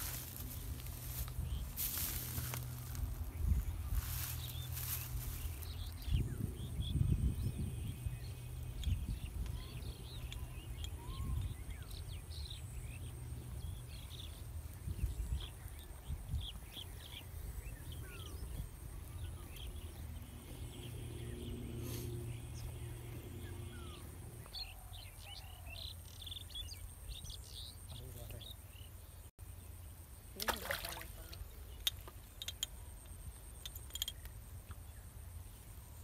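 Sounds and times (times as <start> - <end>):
wind rumble on microphone: 0.0 - 25.4
birds chirping: 0.0 - 35.6.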